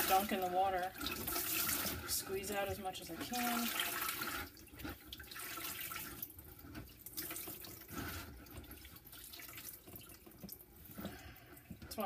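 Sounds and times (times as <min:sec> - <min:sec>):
water trickling into bucket: 0:00.0 - 0:12.0.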